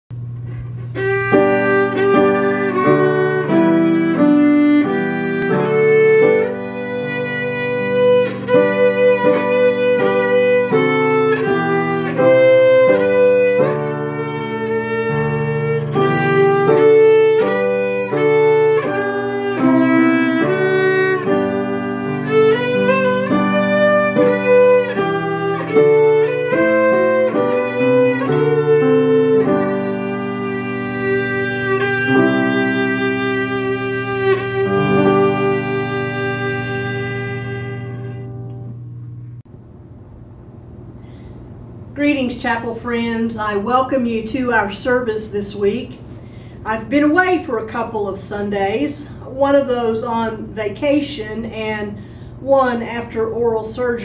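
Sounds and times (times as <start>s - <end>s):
piano accompaniment: 0.1s - 46.1s
violin melody: 0.4s - 39.5s.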